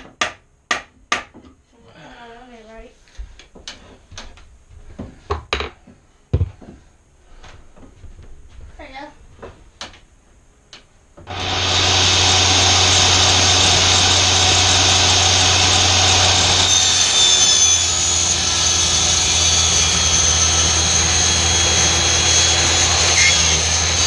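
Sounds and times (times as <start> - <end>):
saw blade cutting wood: 11.3 - 24.0
table saw running: 11.3 - 24.0.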